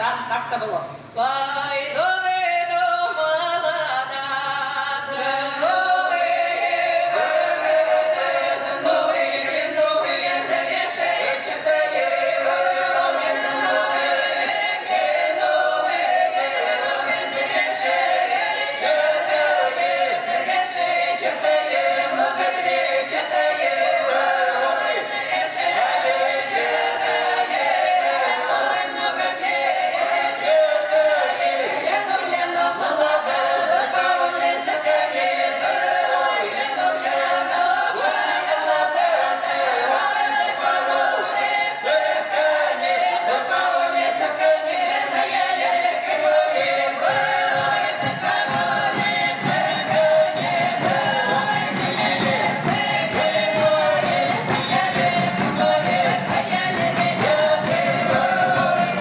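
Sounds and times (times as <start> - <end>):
folk choir singing a cappella: 1.1 - 59.0
low thumps: 47.0 - 59.0.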